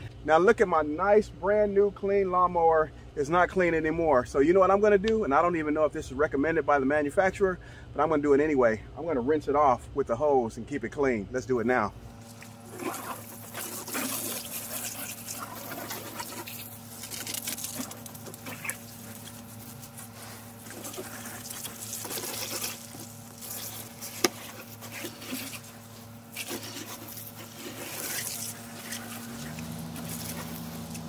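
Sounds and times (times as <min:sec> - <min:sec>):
hose water spraying on plastic: 0:12.1 - 0:31.0.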